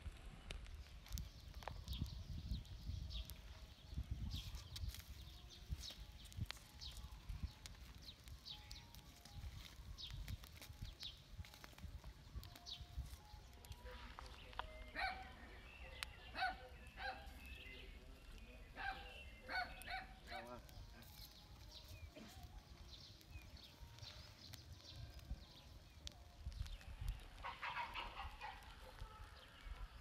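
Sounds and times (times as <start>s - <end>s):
farm fowl honking: 27.4s - 28.6s.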